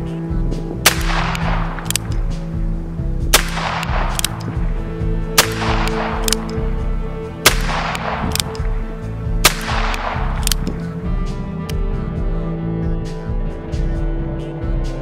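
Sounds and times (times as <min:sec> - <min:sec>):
background music: 0:00.0 - 0:15.0
revolver gunshots with echo: 0:00.8 - 0:02.5, 0:03.3 - 0:10.9.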